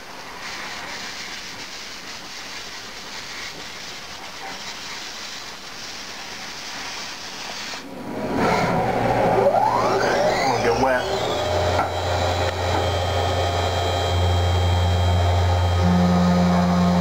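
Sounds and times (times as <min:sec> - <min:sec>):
loud machine sound: 0:08.0 - 0:17.0.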